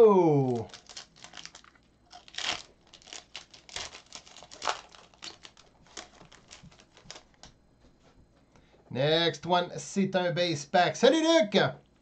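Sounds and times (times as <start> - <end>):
cards rustling: 0.4 - 7.5
foil wrapper crinkling: 0.4 - 7.5.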